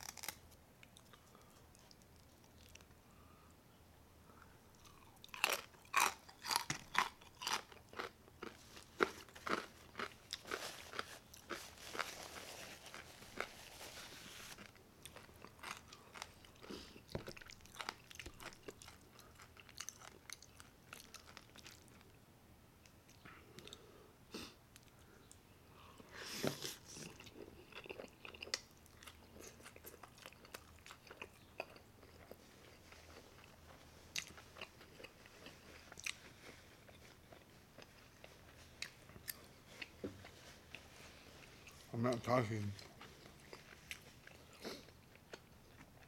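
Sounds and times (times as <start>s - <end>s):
crunching fried pork skin: 0.0s - 0.4s, 5.3s - 12.1s.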